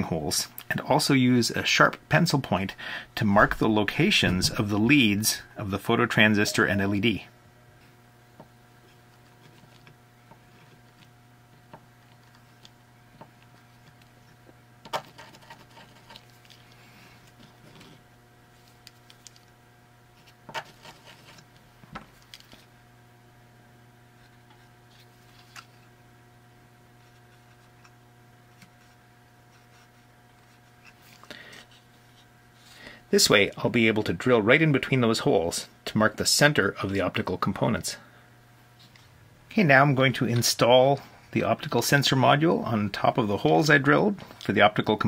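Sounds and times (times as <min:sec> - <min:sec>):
faint hum: 0:00.0 - 0:45.0.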